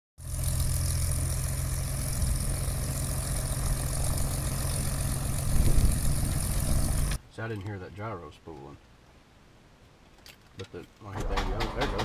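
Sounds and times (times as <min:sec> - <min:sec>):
airplane piston engine running: 0:00.2 - 0:07.2.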